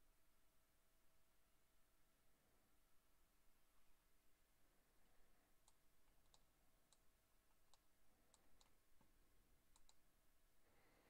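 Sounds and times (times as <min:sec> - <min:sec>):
computer mouse clicks: 0:05.6 - 0:10.1.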